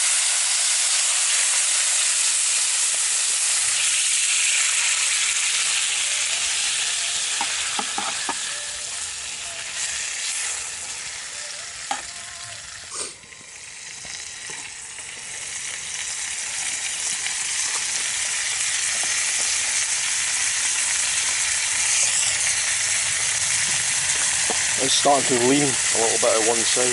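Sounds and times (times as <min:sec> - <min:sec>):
meat sizzling in a frying pan: 0:00.0 - 0:26.9
pan knocking on a log: 0:07.4 - 0:08.4.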